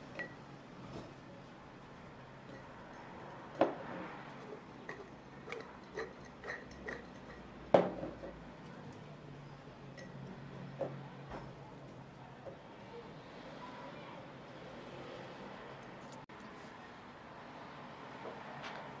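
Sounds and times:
sticks clinking against glass jar: 4.4 - 7.6.

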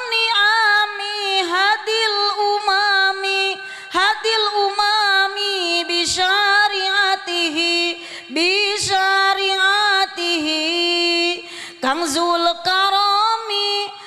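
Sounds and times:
woman singing chant: 0.0 - 14.0
singer breathing: 3.6 - 4.0, 8.0 - 8.4, 11.4 - 11.9.

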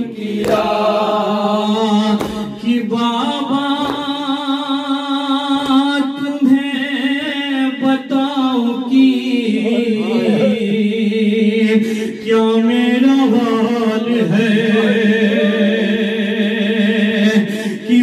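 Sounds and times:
men chanting a lament: 0.0 - 18.0
lead voice on microphone: 5.4 - 11.1, 11.8 - 16.2.

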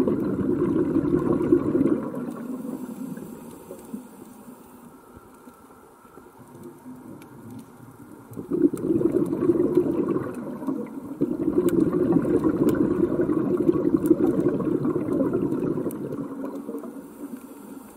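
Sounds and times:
underwater regulator bubbles: 0.0 - 4.0, 6.5 - 17.9
faint sharp clicks: 2.2 - 11.0.

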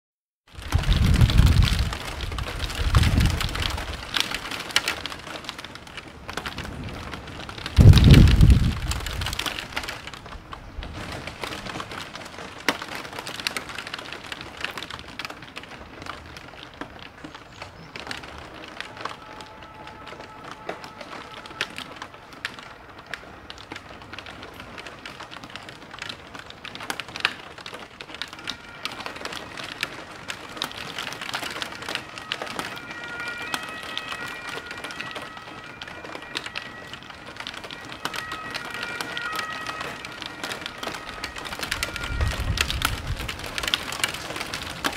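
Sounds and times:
heavy rain pouring: 0.4 - 44.9
thunder rolling: 0.5 - 13.6, 27.8 - 44.9.

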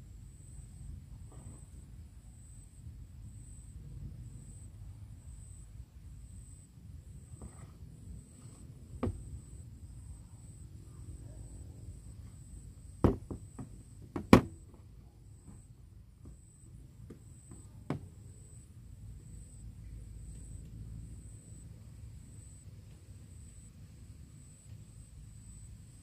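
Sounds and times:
steady low hum: 0.0 - 26.0
phone knocking on hard table: 9.0 - 9.2, 13.0 - 14.5.

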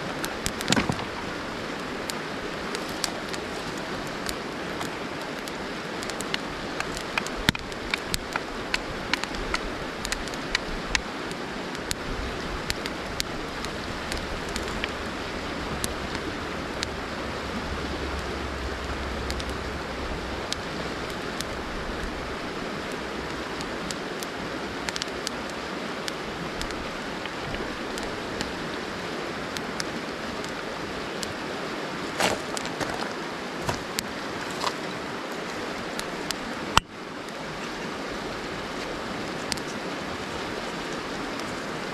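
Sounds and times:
fire crackling and popping: 0.0 - 31.4, 32.1 - 37.4, 38.6 - 41.8
river flowing over stones: 0.0 - 41.9
footsteps on gravel: 32.1 - 34.9.

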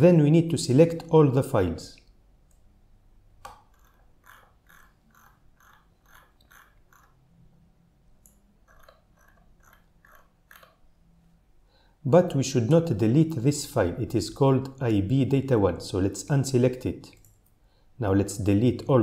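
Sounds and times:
computer mouse ticking: 3.5 - 7.2, 8.2 - 10.8.

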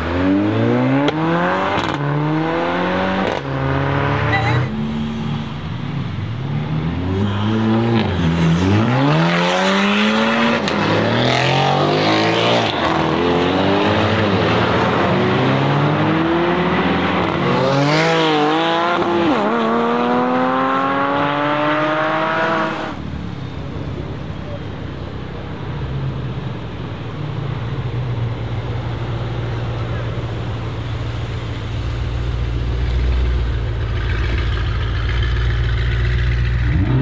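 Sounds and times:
car engine accelerating hard: 0.0 - 4.7, 6.6 - 23.0.

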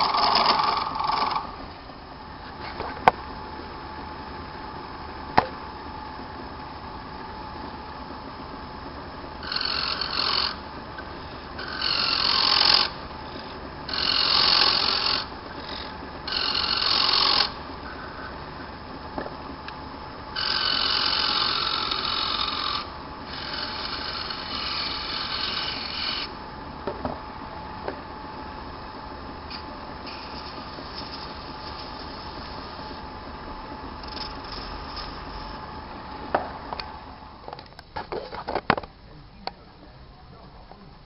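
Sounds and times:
chisel scraping on lathe: 0.0 - 1.5, 9.4 - 17.6, 20.4 - 26.3, 34.0 - 35.6
lathe humming: 0.0 - 37.6.

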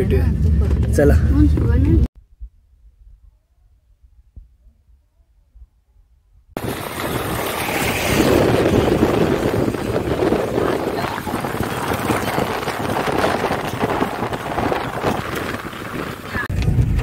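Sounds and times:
wind noise on microphone: 0.0 - 17.0
tyres on wet road: 6.6 - 17.0.

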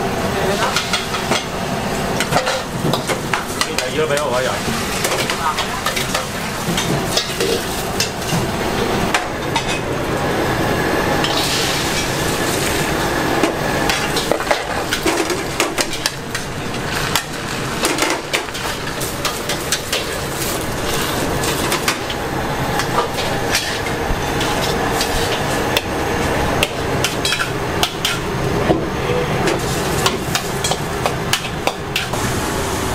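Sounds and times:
kitchen noise: 0.4 - 10.0, 11.2 - 32.3.

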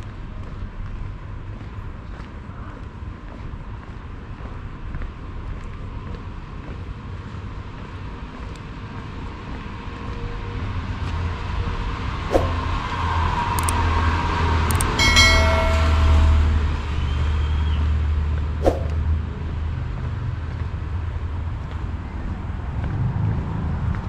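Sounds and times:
low traffic rumble: 0.0 - 24.0
vehicle passing close: 11.5 - 17.8, 18.6 - 19.2
sharp clicks: 13.6 - 13.8, 14.7 - 15.0
brief high-pitched tone: 14.9 - 17.5.

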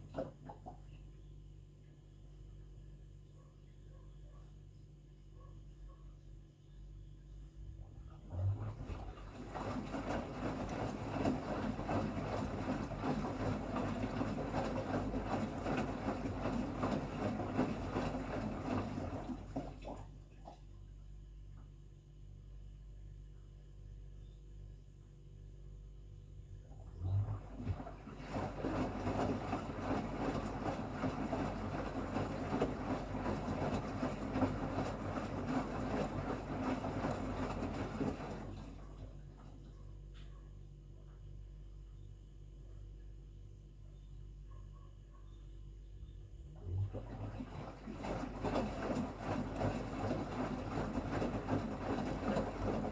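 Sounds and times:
water sloshing in washing machine: 0.0 - 1.0, 7.6 - 21.0, 26.6 - 40.5, 46.0 - 52.9
washing machine motor hum: 0.0 - 52.9.

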